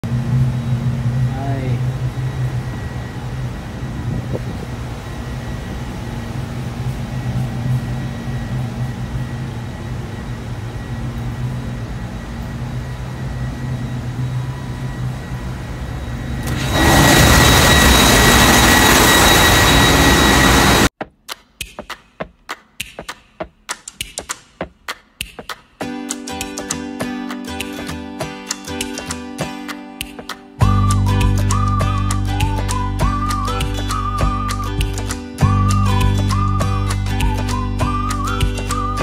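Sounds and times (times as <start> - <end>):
loud engine room din: 0.0 - 20.9
high whine: 0.0 - 21.0, 25.8 - 39.0
ship machinery humming: 0.1 - 20.9, 30.6 - 39.0.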